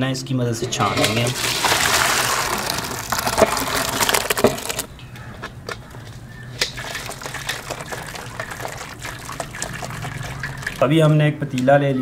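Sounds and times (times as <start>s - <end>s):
water pouring through colander: 0.6s - 4.9s, 6.6s - 11.0s.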